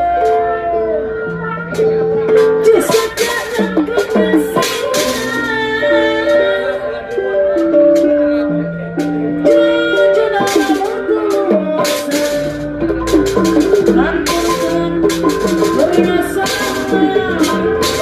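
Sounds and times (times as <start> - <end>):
melody of held notes: 0.0 - 18.0
sharp drum strikes: 2.4 - 5.8, 10.4 - 18.0.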